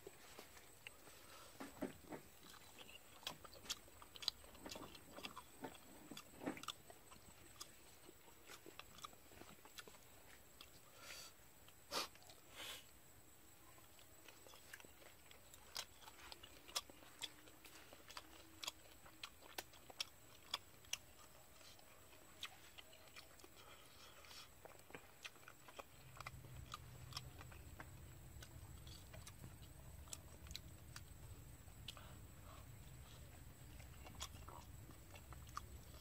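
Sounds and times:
man chewing: 0.0s - 13.0s, 13.6s - 36.0s
faint low rumble: 12.9s - 36.0s.

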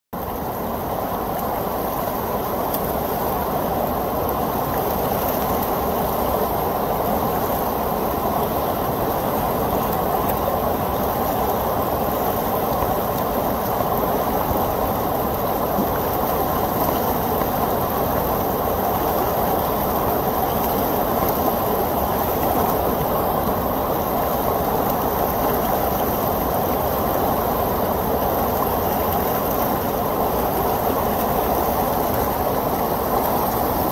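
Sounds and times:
churning white water rushing: 0.2s - 33.9s.

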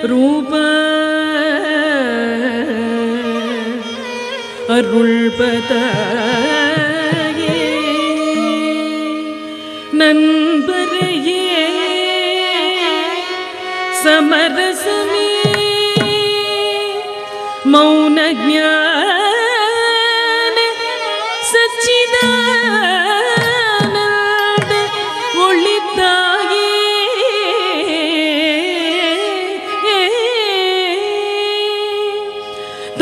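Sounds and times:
ornamented sliding melody: 4.9s - 11.9s, 22.1s - 26.8s.

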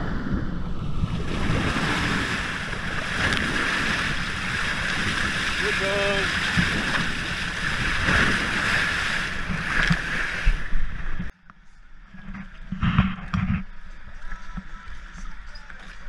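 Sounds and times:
wind on microphone: 0.0s - 11.3s
water rushing along boat hull: 0.0s - 11.4s, 12.0s - 16.0s.

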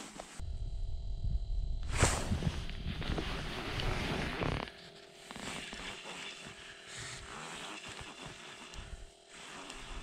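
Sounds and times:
jacket fabric rustling: 0.0s - 0.4s, 1.9s - 10.0s.

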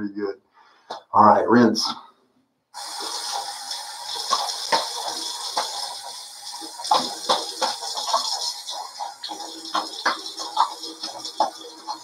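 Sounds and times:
tap running into sink: 2.8s - 12.0s
water splashing on face: 2.8s - 12.0s.

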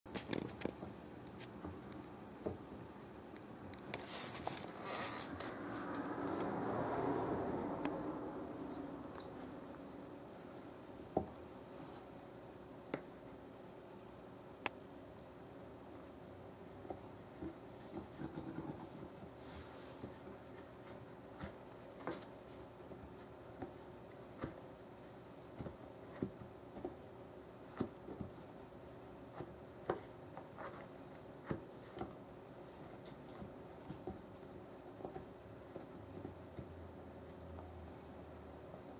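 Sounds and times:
faint steady hum: 0.2s - 38.9s
cardboard rustling: 3.8s - 6.4s
cat scratching cardboard box: 17.0s - 36.6s.

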